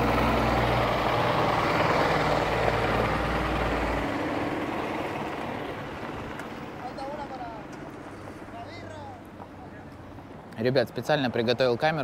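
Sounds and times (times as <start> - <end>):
garbage truck driving past: 0.0 - 6.7.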